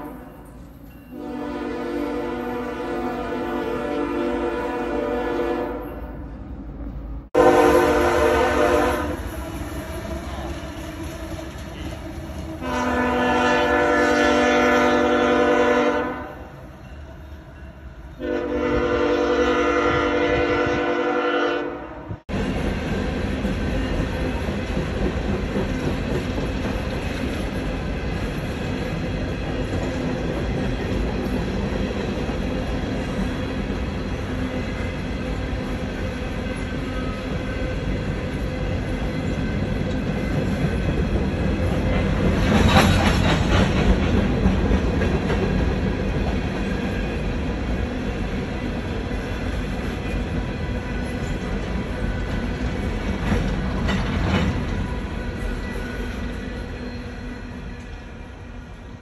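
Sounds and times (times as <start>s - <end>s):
diesel locomotives rumbling: 0.0s - 59.0s
train air horn blasts: 1.1s - 6.2s, 7.4s - 10.5s, 12.6s - 16.6s, 18.2s - 22.2s.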